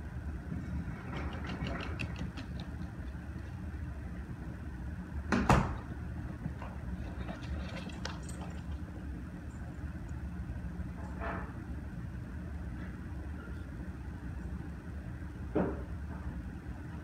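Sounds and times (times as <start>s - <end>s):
dog claws clicking on wood floor: 1.1s - 3.5s, 6.6s - 8.8s.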